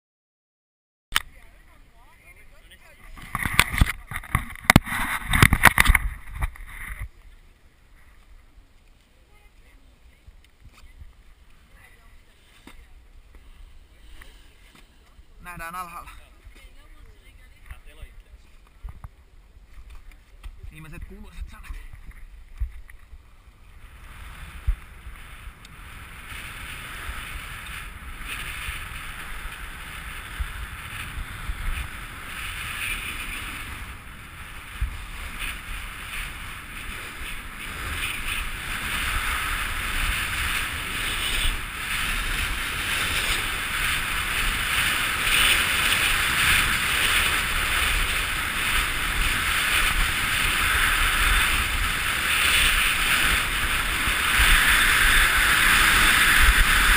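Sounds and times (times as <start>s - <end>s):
skis scraping over snow: 19.9s - 56.9s
wind buffeting microphone: 19.9s - 56.9s.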